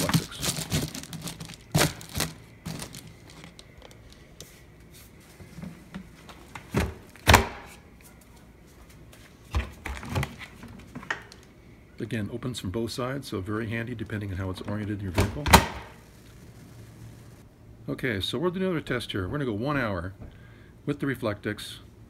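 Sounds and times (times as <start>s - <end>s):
foil liner crinkling: 0.0s - 4.4s.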